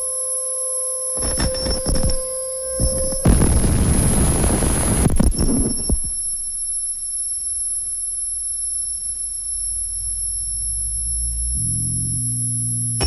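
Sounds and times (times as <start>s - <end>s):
thin high whining tones: 0.0s - 11.7s
low electronic hum: 1.2s - 13.0s
harsh electronic noise blast: 2.8s - 6.4s.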